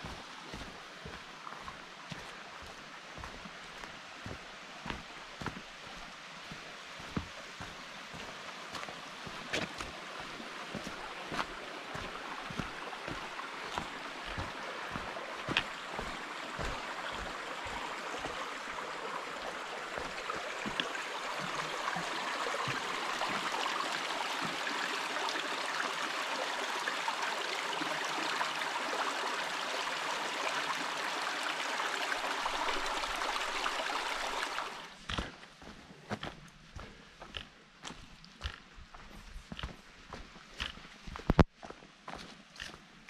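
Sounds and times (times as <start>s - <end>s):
footsteps on dirt trail: 0.0s - 21.6s, 34.9s - 42.8s
brook trickling over stones: 0.0s - 43.0s.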